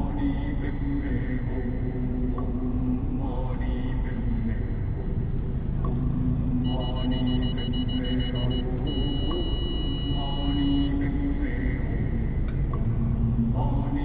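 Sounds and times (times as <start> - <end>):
music playing: 5.8 - 13.4
long high-pitched tones: 6.6 - 11.6.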